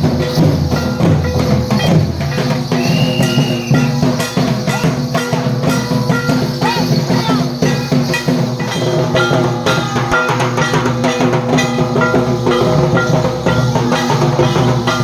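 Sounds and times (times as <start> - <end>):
drums beating steady rhythm: 0.0 - 15.0.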